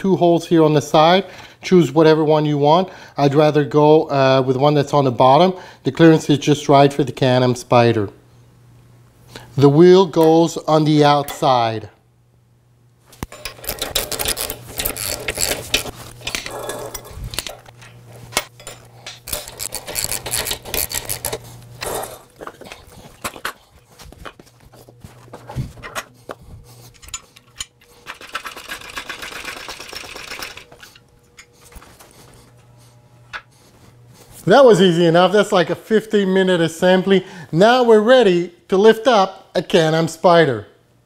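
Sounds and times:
ratchet wrench clicking: 13.3 - 16.4, 19.3 - 21.4, 27.0 - 30.7
metal parts knocking: 13.3 - 17.8, 27.0 - 30.7.

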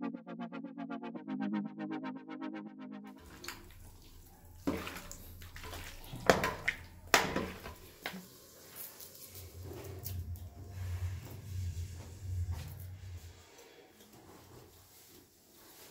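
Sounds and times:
water sloshing and splashing: 3.2 - 13.0.

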